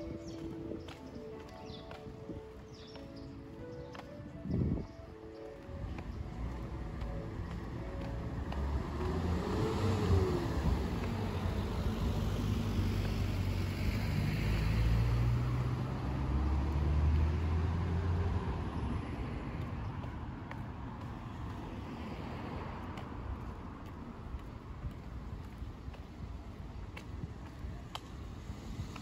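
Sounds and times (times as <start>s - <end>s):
background traffic: 0.0s - 29.0s
car driving by: 6.9s - 19.0s.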